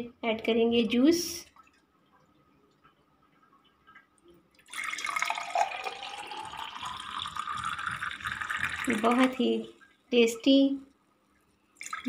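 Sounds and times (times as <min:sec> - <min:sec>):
juice pouring into glass: 0:04.6 - 0:09.4, 0:11.8 - 0:12.0.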